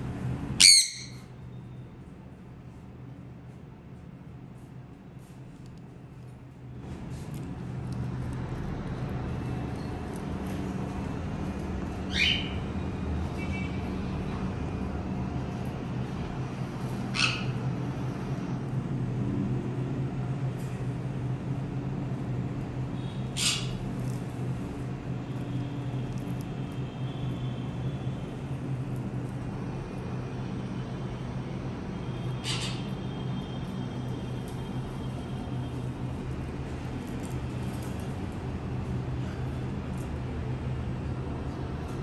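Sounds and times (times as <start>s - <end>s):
steady low hum: 0.0s - 42.0s
parrots screeching: 0.6s - 1.3s, 12.1s - 12.6s, 17.1s - 17.6s, 23.4s - 23.8s, 32.4s - 32.9s.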